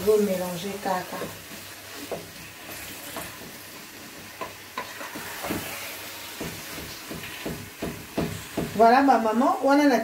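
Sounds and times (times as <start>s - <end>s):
sauce sizzling: 0.0s - 10.0s
wooden spoon scraping a pot: 0.1s - 7.6s.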